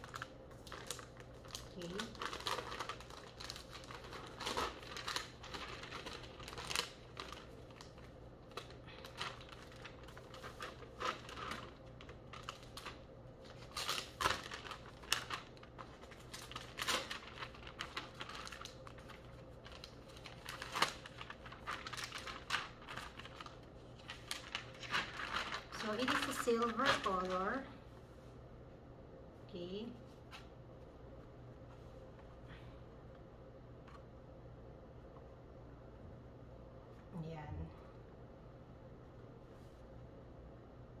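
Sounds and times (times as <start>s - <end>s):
plastic packaging crinkling: 0.0s - 27.7s.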